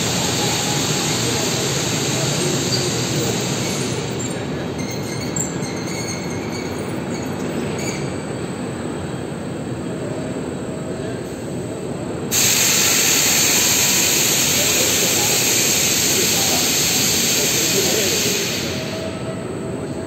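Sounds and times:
faint high squeaks: 4.2 - 8.3.

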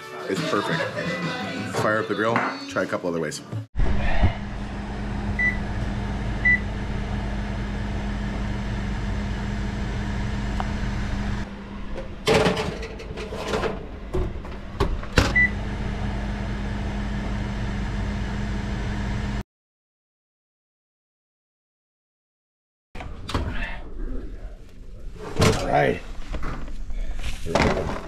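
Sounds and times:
oven electric hum: 3.8 - 19.4.

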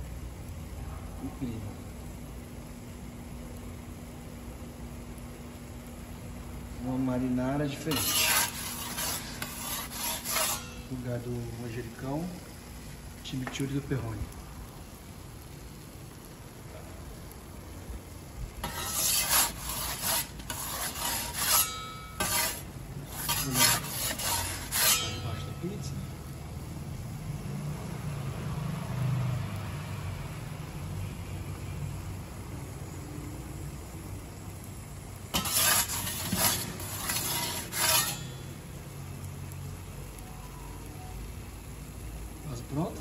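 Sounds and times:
metal peel scraping stone: 7.7 - 11.7, 18.6 - 26.1, 35.3 - 38.5.

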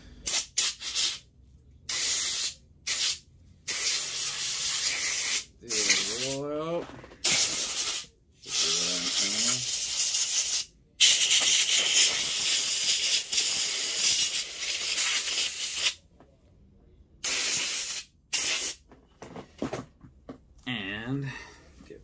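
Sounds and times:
air blow gun hissing: 1.9 - 6.4, 7.2 - 16.0, 17.2 - 18.8.

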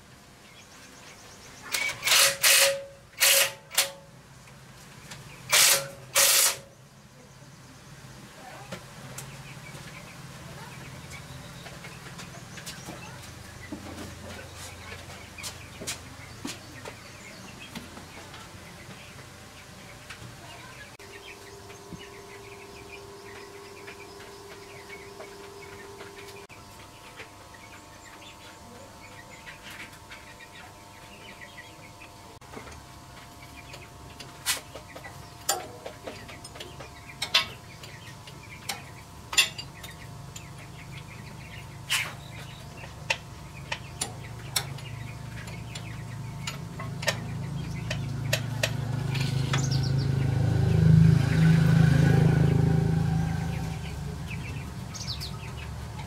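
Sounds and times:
birds: 0.0 - 3.4, 4.2 - 56.0
low hum: 20.6 - 56.0.

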